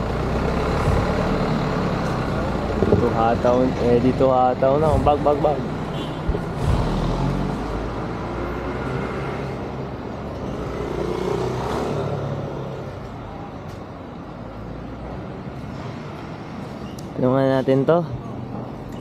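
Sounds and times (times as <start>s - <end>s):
vehicle engine running close by: 0.0s - 4.0s.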